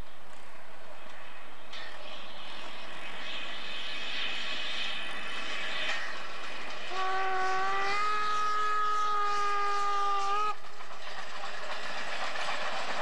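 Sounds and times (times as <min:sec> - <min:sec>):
train running noise: 0:00.0 - 0:13.0
steam locomotive whistle: 0:06.9 - 0:10.6.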